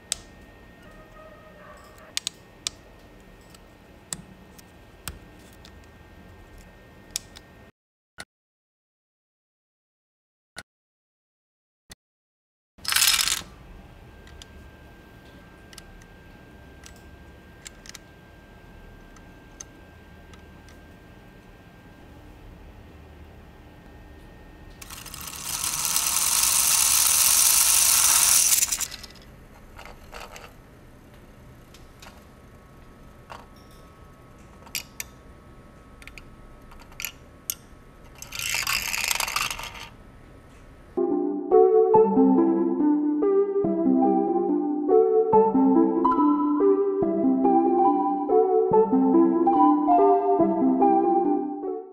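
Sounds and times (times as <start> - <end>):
spinning top skittering on plastic: 12.8 - 13.4, 24.8 - 30.5, 38.1 - 39.9.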